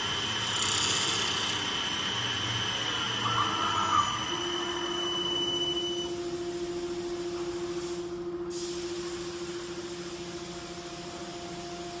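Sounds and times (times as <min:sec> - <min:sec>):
wood lathe motor whine: 0:00.0 - 0:05.3.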